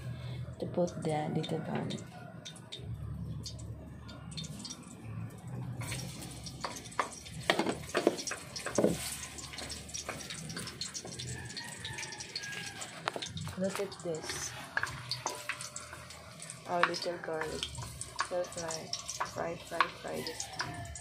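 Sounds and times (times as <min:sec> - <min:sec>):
garlic sizzling in a wok: 0:05.5 - 0:21.0
wooden ladle knocking: 0:07.0 - 0:09.1.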